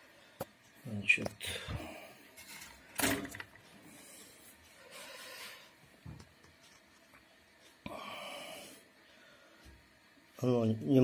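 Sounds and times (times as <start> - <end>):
soft handling rubbing and hiss: 3.6 - 11.0.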